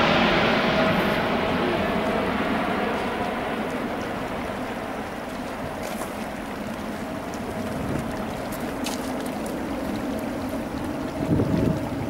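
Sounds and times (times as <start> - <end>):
jet engines rushing: 0.0 - 12.0.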